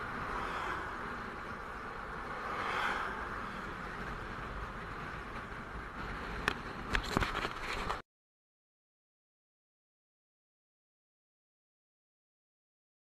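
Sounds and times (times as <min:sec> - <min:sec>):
wind and road rush: 0:00.0 - 0:08.0.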